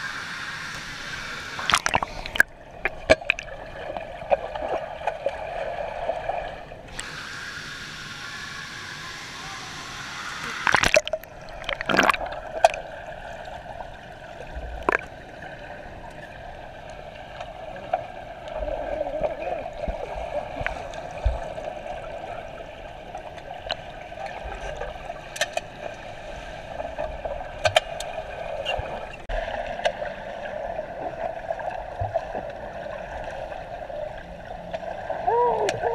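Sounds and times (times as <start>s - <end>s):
water gurgling and sloshing: 1.1s - 7.4s, 10.5s - 35.9s
hiss: 7.0s - 10.7s.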